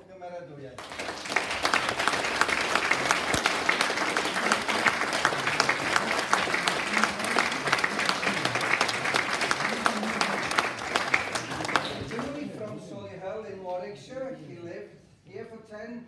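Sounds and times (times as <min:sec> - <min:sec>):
audience applauding: 0:00.8 - 0:12.6.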